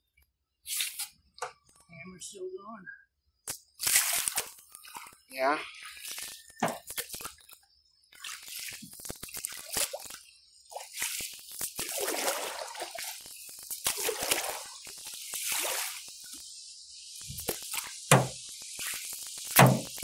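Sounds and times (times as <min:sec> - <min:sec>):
water splashing around a canoe: 0:03.8 - 0:07.5, 0:08.1 - 0:16.1, 0:17.3 - 0:20.0.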